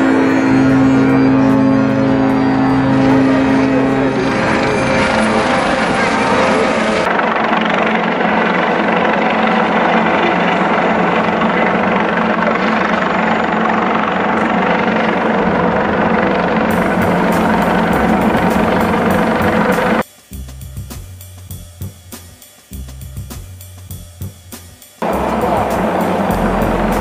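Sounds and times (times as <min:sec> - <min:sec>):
helicopter flying low overhead: 0:00.0 - 0:20.0, 0:25.0 - 0:27.0
music with drums: 0:16.7 - 0:27.0.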